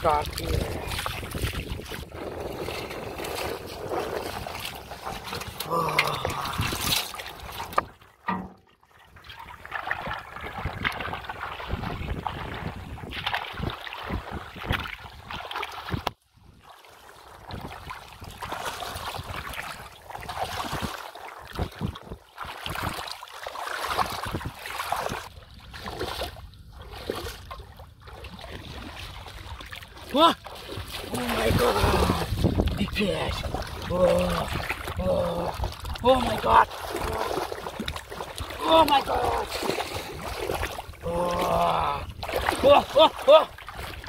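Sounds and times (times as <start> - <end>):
person wading through water: 0.0 - 44.0
metal pot moving in water: 0.6 - 8.8.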